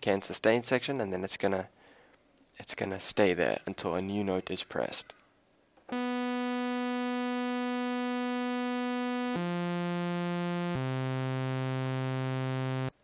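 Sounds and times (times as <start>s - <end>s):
buzzy synthesizer notes: 5.9s - 13.0s.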